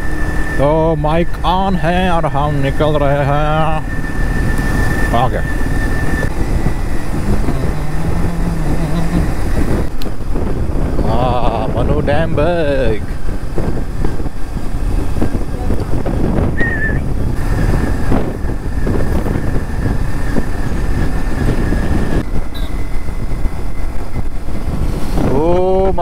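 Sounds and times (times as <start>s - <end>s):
motorcycle engine rumble: 0.0s - 26.0s.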